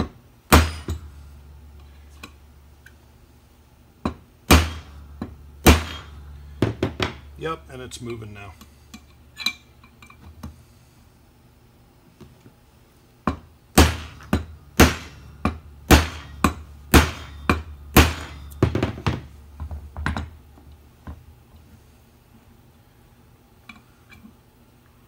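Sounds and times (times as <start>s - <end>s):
hammer striking steel punch: 0.5s - 1.2s, 4.0s - 7.4s, 13.3s - 19.3s.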